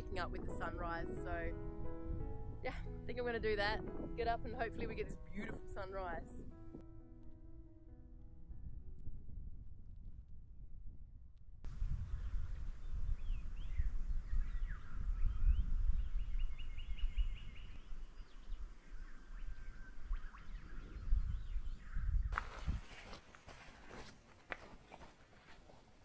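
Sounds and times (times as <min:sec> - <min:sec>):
steady low rumble: 0:08.4 - 0:22.3
bird whistle: 0:19.1 - 0:22.3.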